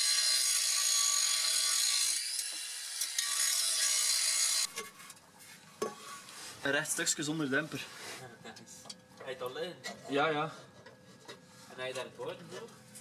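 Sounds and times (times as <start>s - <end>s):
angle grinder cutting steel pipe: 0.0s - 4.7s.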